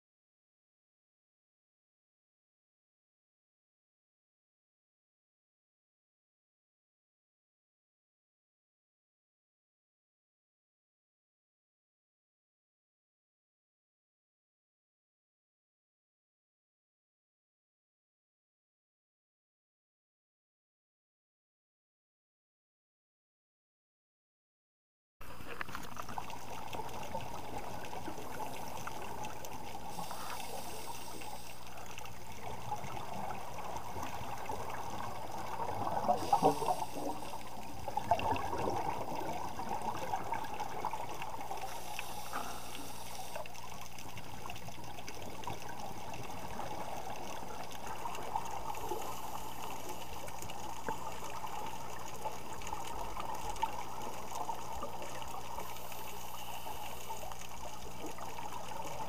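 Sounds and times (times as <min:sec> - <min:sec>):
bubbling of exhaled air: 0:25.2 - 0:59.0
muffled underwater hiss: 0:25.2 - 0:59.0.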